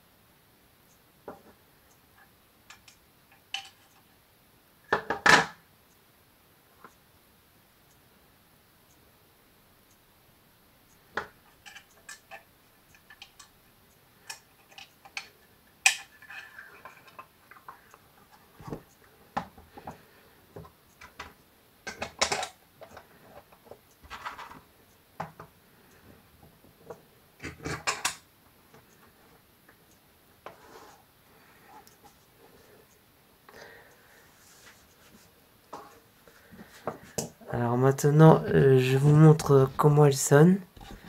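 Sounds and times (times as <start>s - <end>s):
plastic parts clicking and knocking: 11.1s - 13.5s, 14.2s - 24.6s, 26.4s - 28.2s.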